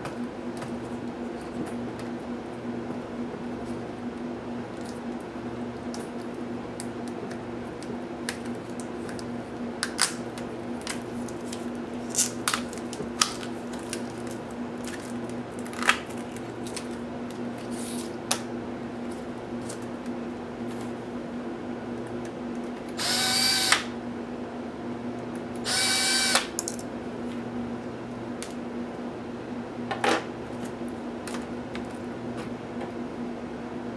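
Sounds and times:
steady low hum: 0:00.0 - 0:33.9
electric screwdriver whirring: 0:23.0 - 0:23.9, 0:25.6 - 0:26.5.

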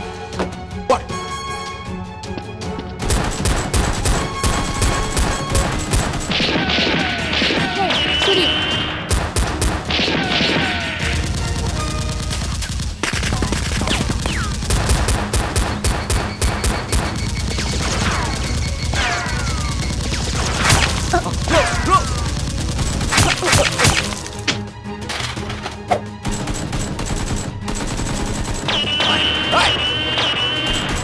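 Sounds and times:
action background music: 0:00.0 - 0:31.0
gunfire: 0:03.0 - 0:24.6, 0:26.2 - 0:31.0.

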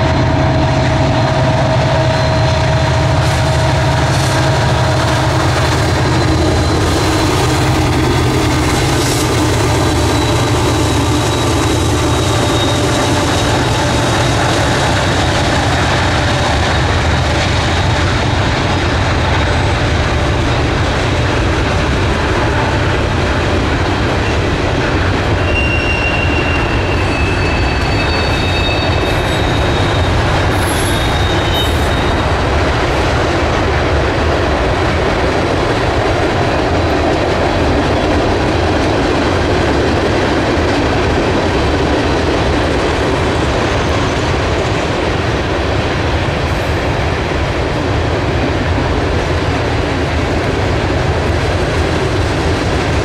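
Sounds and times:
train wheels rumbling on rails: 0:00.0 - 0:53.0
high wheel squeals: 0:01.0 - 0:16.4, 0:25.3 - 0:32.4.

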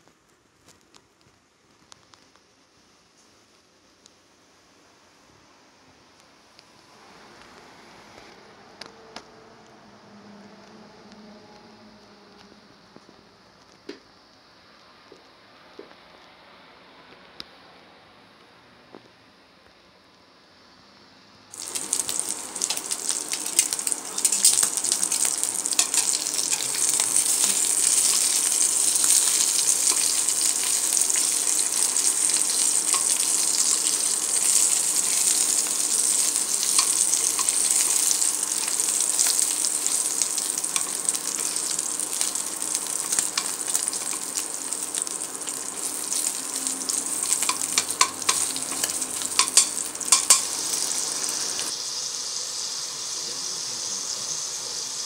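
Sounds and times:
fat sizzling in pan: 0:21.5 - 0:55.0
metal tongs clicking: 0:47.4 - 0:50.5.

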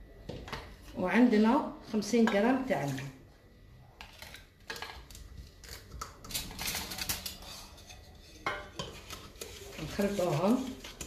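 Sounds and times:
metal pan and bowl clinking: 0:05.6 - 0:11.0.

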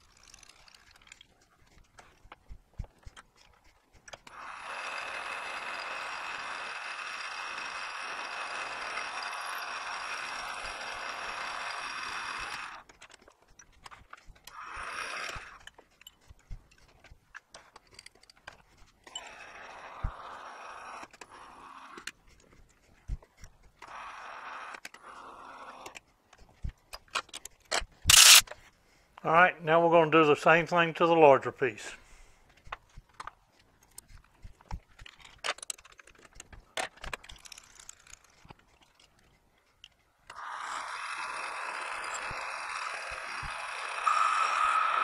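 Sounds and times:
lathe drilling whir: 0:04.3 - 0:12.8, 0:40.3 - 0:45.0.

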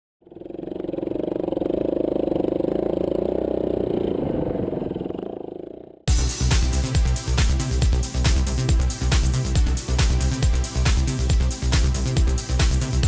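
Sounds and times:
motorcycle engine running: 0:00.2 - 0:13.0
electronic music with heavy beat: 0:06.1 - 0:13.0.

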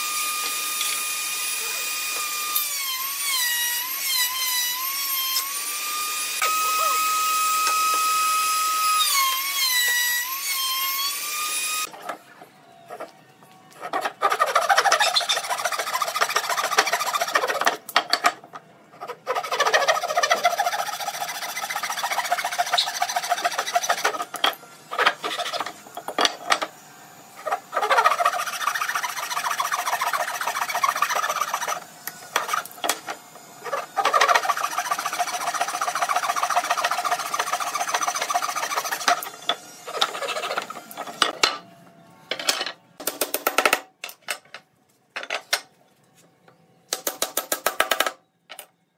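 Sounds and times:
hand saw cutting wood: 0:13.8 - 0:17.8, 0:19.0 - 0:25.8, 0:27.4 - 0:41.3.

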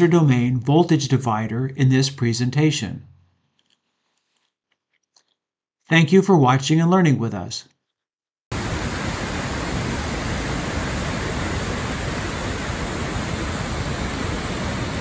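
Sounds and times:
waterfall rushing: 0:08.5 - 0:15.0.

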